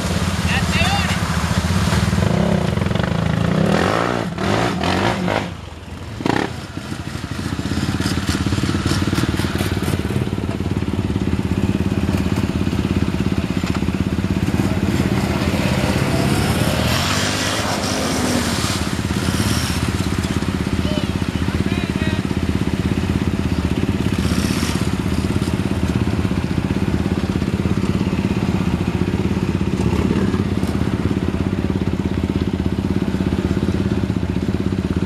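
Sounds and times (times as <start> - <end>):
mud and water spraying: 0.0 - 32.2
atv engine revving: 0.0 - 35.0.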